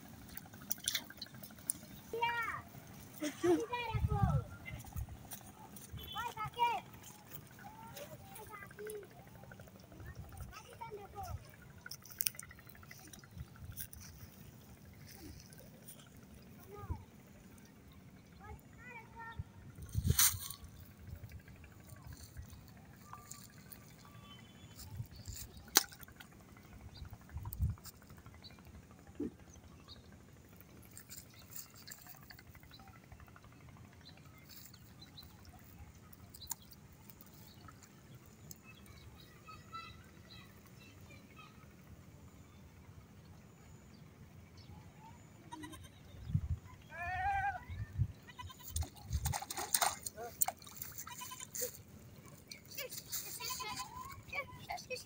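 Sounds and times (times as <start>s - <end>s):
faint water and handling sounds: 0.0s - 42.4s, 47.9s - 55.0s
goat bleating: 45.5s - 45.9s, 48.3s - 48.9s, 50.8s - 51.8s
fish splashing in water: 48.7s - 51.5s.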